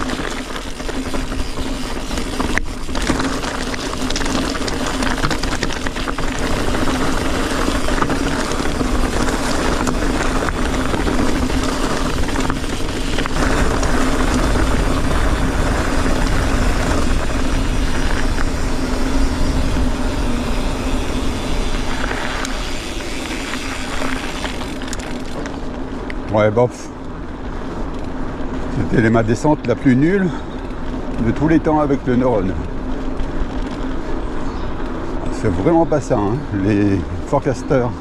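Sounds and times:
wind on microphone: 0:00.0 - 0:25.6
bike tyres rattling over stones: 0:00.0 - 0:38.0
steady hum: 0:00.0 - 0:38.0.

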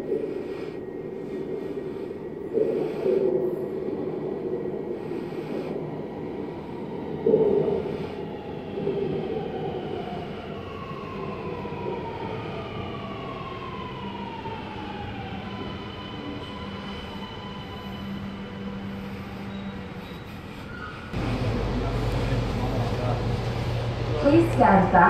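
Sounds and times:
train running rumble: 0:13.4 - 0:25.0
train traction whine falling: 0:21.2 - 0:25.0.

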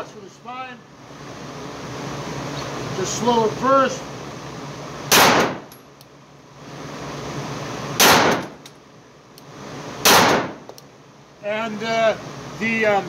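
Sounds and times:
pistol shots echoing: 0:05.1 - 0:05.7, 0:08.0 - 0:08.6, 0:10.0 - 0:10.7.

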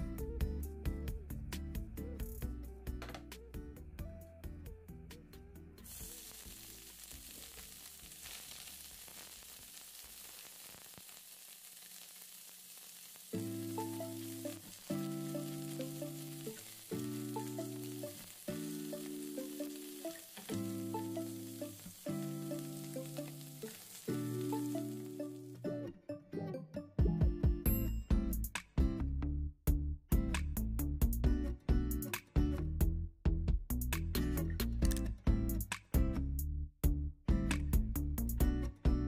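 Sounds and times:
mushrooms sizzling in oil: 0:05.9 - 0:25.6.

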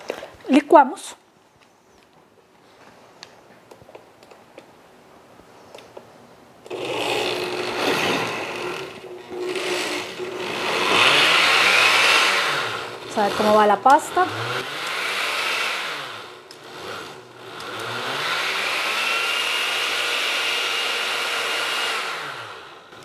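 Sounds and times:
blender blending liquid: 0:06.7 - 0:23.0.

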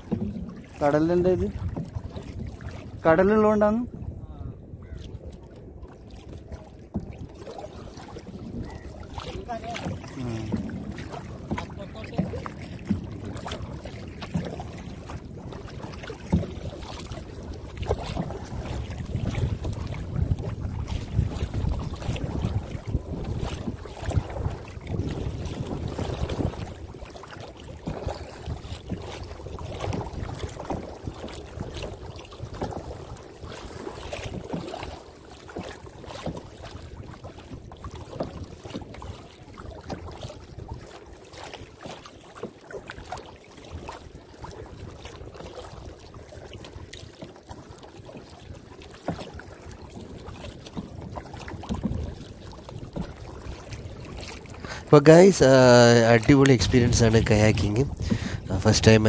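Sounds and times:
wind rumbling on microphone: 0:00.0 - 0:27.2, 0:27.8 - 0:34.8, 0:50.8 - 0:59.0
kayak paddle splashing in water: 0:00.0 - 0:59.0.

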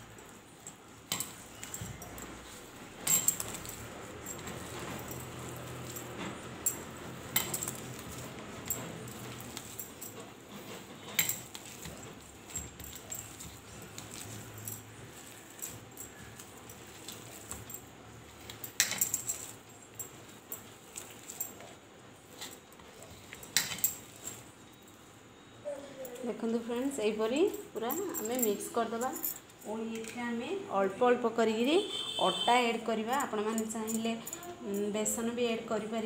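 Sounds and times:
metallic clinks against plate: 0:00.6 - 0:21.7, 0:22.4 - 0:24.4.

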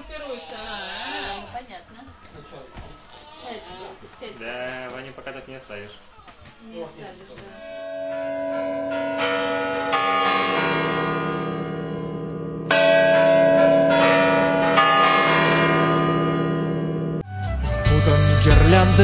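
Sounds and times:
bells chiming: 0:07.6 - 0:17.2.

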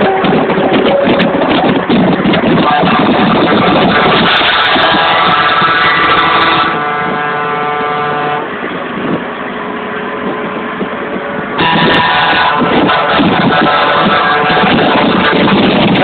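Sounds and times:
road and engine noise: 0:00.0 - 0:16.0
truck air horn blast: 0:02.6 - 0:08.6, 0:11.6 - 0:16.0.

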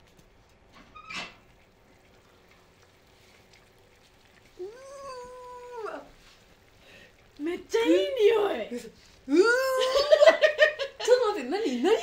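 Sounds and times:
woman humming mmm of delight: 0:04.6 - 0:06.1.

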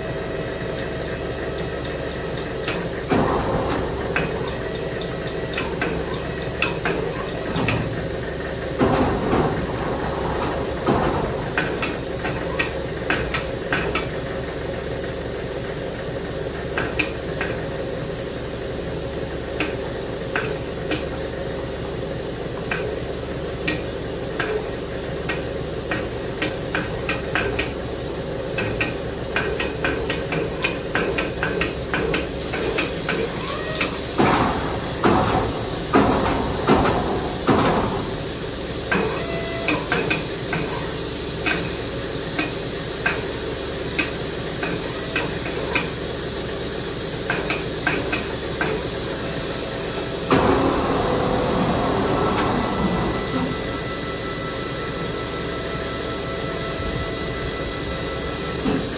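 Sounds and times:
steady hum: 0:48.1 - 0:58.9.

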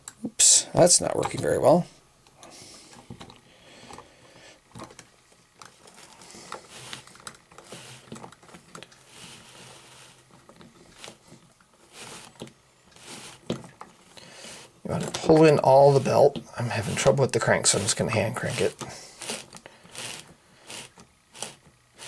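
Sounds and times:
plastic rustling: 0:05.6 - 0:22.0.

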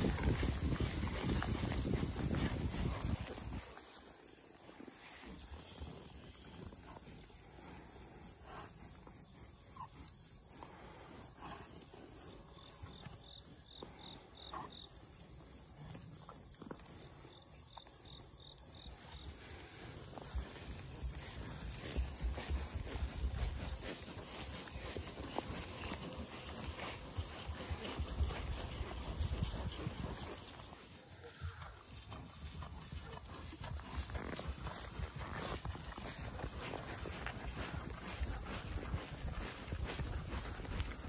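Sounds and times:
footsteps through tall grass: 0:00.0 - 0:07.4, 0:18.7 - 0:41.0
insects chirping: 0:00.0 - 0:41.0.

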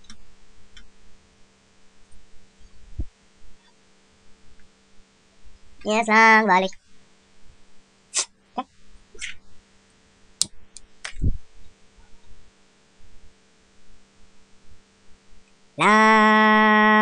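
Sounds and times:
microphone handling clicks: 0:11.0 - 0:11.4.

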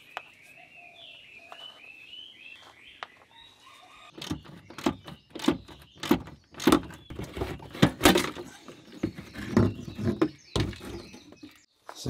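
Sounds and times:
hollow plastic knocks and clunks: 0:04.2 - 0:11.5.

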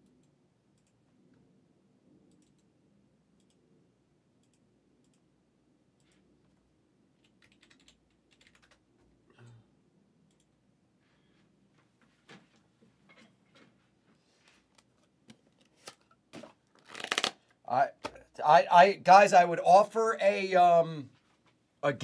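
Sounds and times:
computer keyboard typing: 0:07.2 - 0:08.9.

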